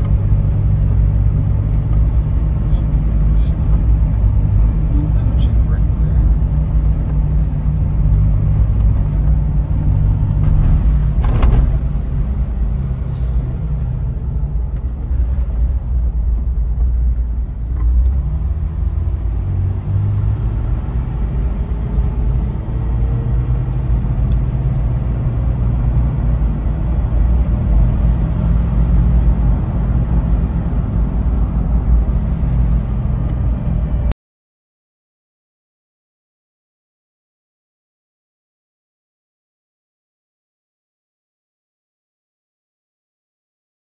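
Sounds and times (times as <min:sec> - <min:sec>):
engine and tyres rumbling: 0:00.0 - 0:34.2.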